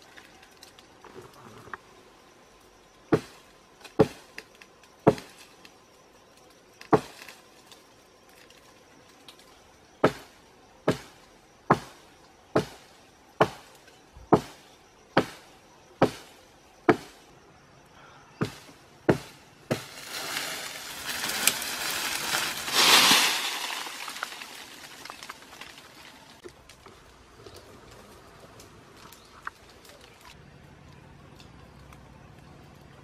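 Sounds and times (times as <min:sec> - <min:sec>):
crash of leaves and branches: 0:18.4 - 0:30.4.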